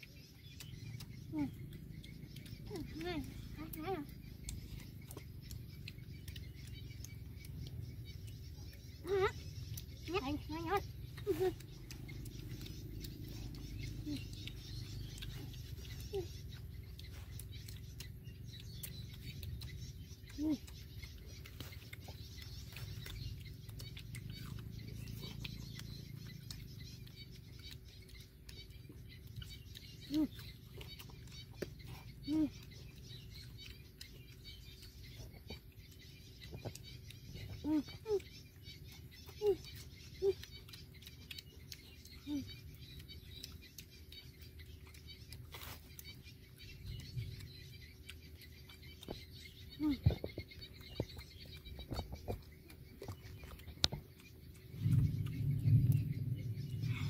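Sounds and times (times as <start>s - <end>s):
chewing and lip-smacking: 0.0s - 57.0s
low steady rumble: 0.0s - 57.0s.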